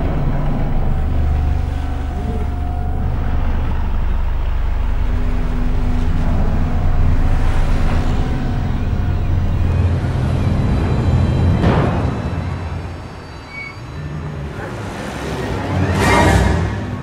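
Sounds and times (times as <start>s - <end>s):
faint held tones: 0.0s - 11.6s
low rumbling drone: 0.0s - 17.0s.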